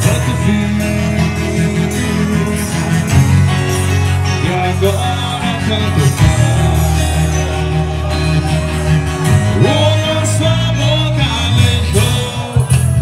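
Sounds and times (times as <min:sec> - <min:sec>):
accordion: 0:00.0 - 0:13.0
heavy steady bass: 0:00.0 - 0:13.0
live band playing through pa: 0:00.0 - 0:13.0.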